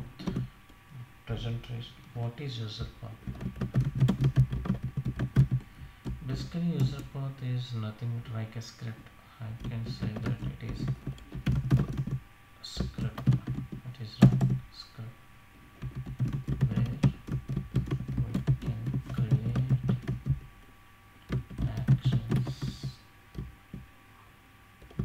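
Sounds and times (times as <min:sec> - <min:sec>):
typing on keyboard: 0:03.2 - 0:06.2, 0:09.6 - 0:14.6, 0:15.8 - 0:20.4, 0:21.2 - 0:23.8.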